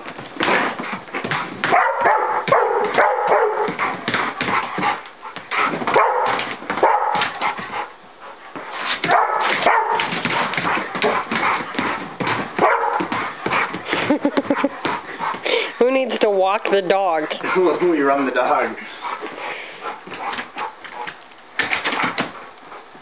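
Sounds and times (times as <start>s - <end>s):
paws scrabbling on floor: 0.0s - 23.0s
dog barking and whining: 1.6s - 5.0s, 5.6s - 13.7s.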